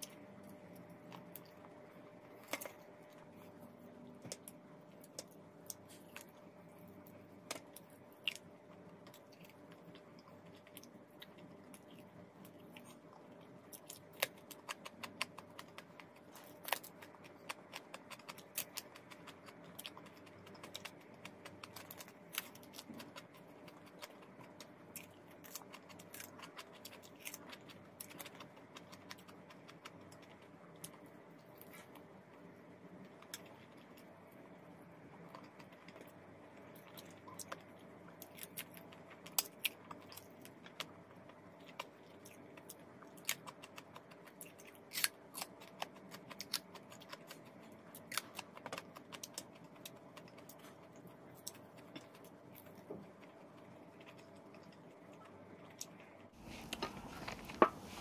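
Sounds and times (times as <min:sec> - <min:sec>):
faint steady hum: 0:00.0 - 0:58.0
person chewing and lip-smacking: 0:07.4 - 0:32.0, 0:35.2 - 0:56.1.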